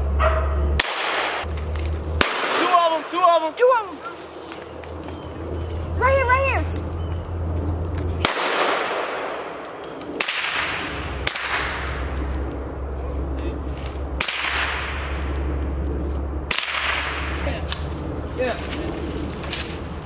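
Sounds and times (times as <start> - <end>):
gunshots cracking: 0.8 - 1.5, 2.1 - 3.2, 8.2 - 12.3, 14.1 - 15.4, 16.5 - 17.9.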